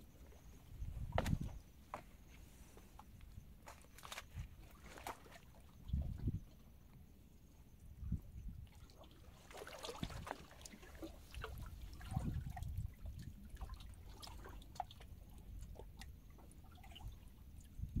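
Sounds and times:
water drips and splashes: 0:08.5 - 0:18.0
water lapping against rocks: 0:08.7 - 0:17.4.

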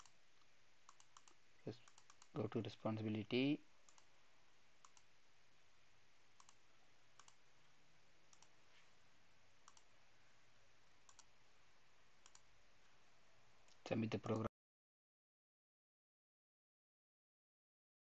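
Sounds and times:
low steady hiss: 0:00.0 - 0:14.5
computer mouse clicks: 0:00.9 - 0:02.4, 0:03.8 - 0:04.1, 0:04.8 - 0:05.1, 0:06.4 - 0:06.6, 0:07.2 - 0:07.4, 0:08.3 - 0:08.5, 0:09.6 - 0:09.9, 0:11.1 - 0:11.3, 0:12.2 - 0:12.5.

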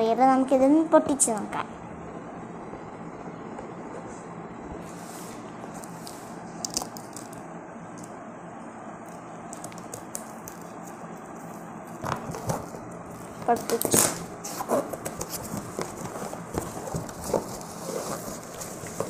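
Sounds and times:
cardboard parcel rustling: 0:09.6 - 0:19.0.

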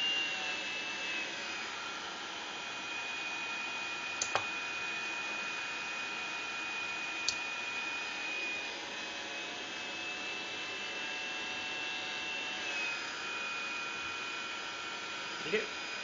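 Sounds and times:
hairdryer running: 0:00.0 - 0:16.0
small click: 0:04.2 - 0:04.5, 0:07.2 - 0:07.4.

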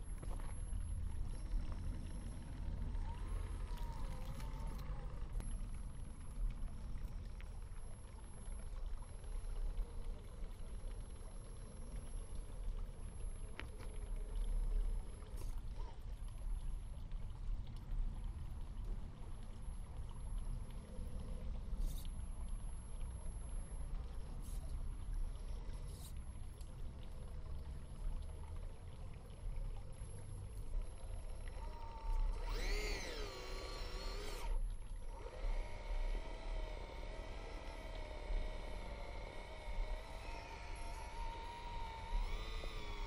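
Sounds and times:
low steady rumble: 0:00.0 - 0:43.0
water sounds: 0:00.0 - 0:43.0
electric motor whine: 0:02.9 - 0:05.5, 0:31.1 - 0:43.0.

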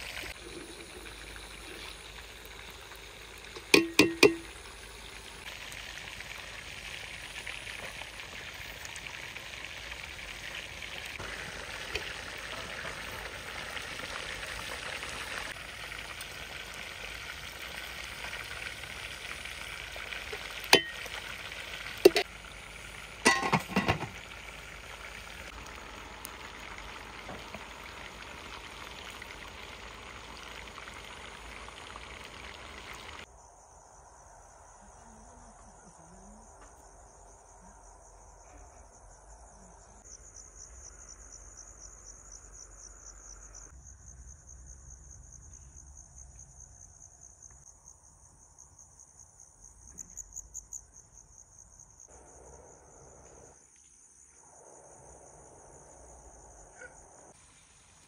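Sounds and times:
fish simmering hiss: 0:00.0 - 0:33.3, 0:52.0 - 0:58.0
crickets chirping: 0:00.0 - 0:58.0.

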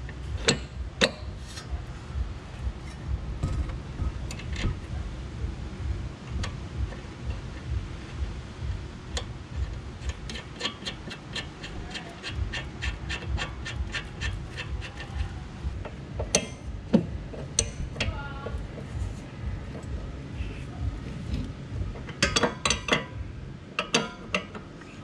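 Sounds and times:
ratchet wrench clicking: 0:09.1 - 0:15.4, 0:16.2 - 0:16.7, 0:17.5 - 0:18.2, 0:22.0 - 0:23.1, 0:23.8 - 0:24.6.

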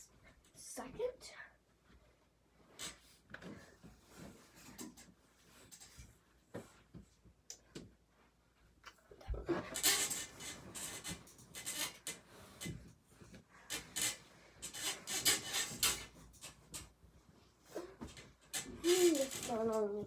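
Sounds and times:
bedding rustling: 0:01.7 - 0:20.0.

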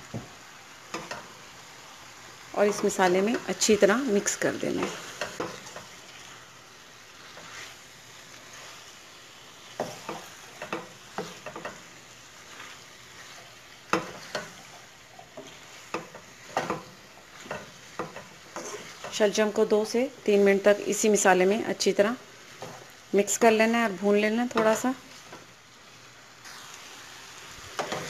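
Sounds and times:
food sizzling: 0:00.0 - 0:28.0
spatula scraping a metal pot: 0:15.4 - 0:19.3.

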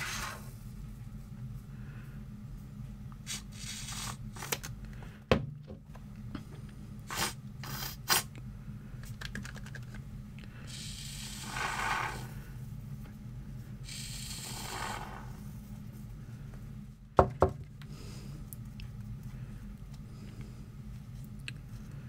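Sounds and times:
expanding foam spraying: 0:10.7 - 0:12.4, 0:13.9 - 0:15.5.

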